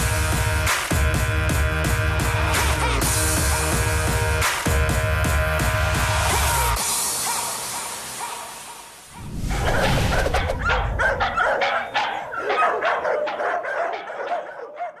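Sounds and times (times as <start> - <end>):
music: 0.0 - 11.2
dogs barking and yipping: 6.2 - 15.0
low rumble: 9.1 - 11.4.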